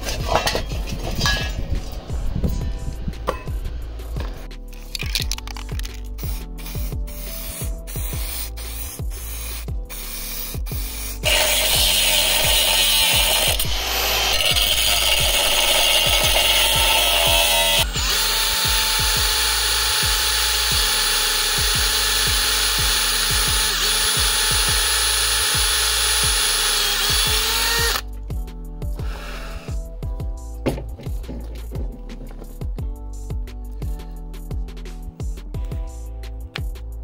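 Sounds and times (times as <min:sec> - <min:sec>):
background music with beat: 0:00.0 - 0:13.9, 0:27.1 - 0:37.0
angle grinder cutting steel: 0:10.0 - 0:28.0
cordless drill boring into stone: 0:11.1 - 0:28.0.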